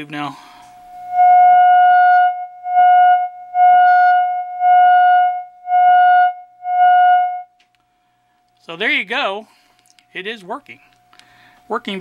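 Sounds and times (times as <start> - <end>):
faint hum: 0.0 - 12.0
buzzy test tone from speaker: 0.7 - 7.6.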